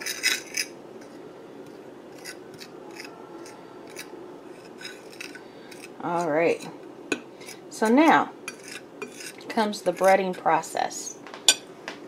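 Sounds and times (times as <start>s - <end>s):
flour scraping on ceramic plate: 2.1s - 6.7s, 8.5s - 10.4s.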